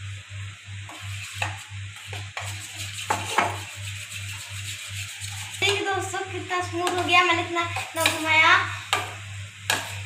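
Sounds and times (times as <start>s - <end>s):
spoon stirring batter in bowl: 0.9s - 6.0s.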